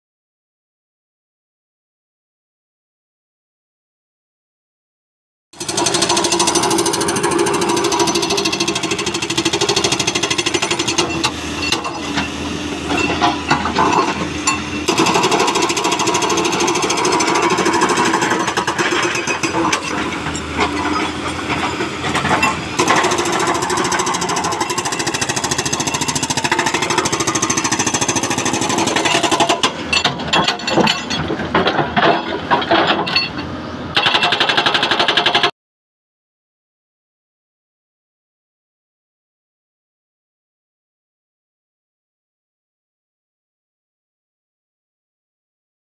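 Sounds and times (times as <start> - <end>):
hydraulic breaker hammering rock: 5.6 - 35.5.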